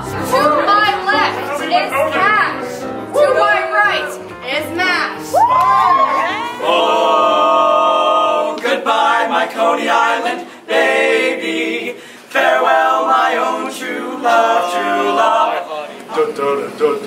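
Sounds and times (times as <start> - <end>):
male voices singing in close harmony: 6.5 - 17.0.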